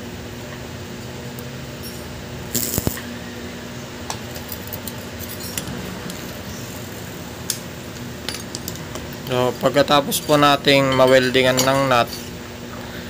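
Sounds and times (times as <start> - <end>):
welding arc crackle: 1.4 - 3.2.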